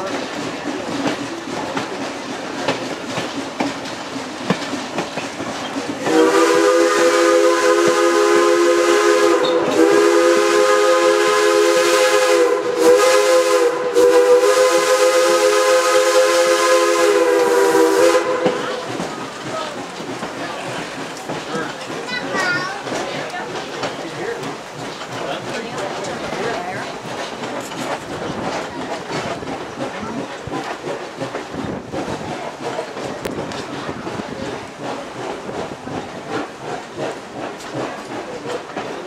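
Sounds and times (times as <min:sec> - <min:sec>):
train wheels rumbling on rails: 0:00.0 - 0:39.0
steam locomotive chime whistle: 0:06.0 - 0:18.9.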